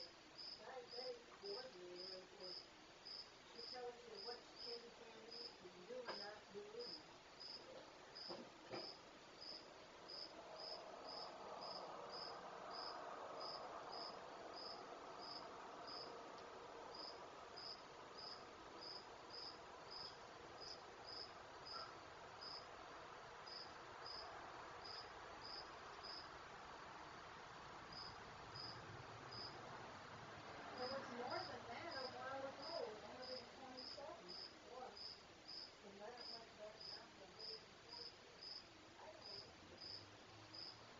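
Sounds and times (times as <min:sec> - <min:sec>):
crickets chirping: 0:00.0 - 0:40.9
soft background noise: 0:00.0 - 0:40.9.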